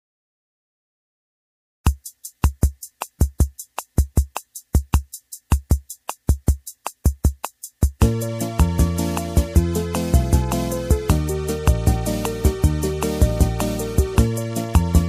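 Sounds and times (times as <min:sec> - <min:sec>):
drum machine beat: 0:01.9 - 0:15.0
bass and melody: 0:07.9 - 0:15.0.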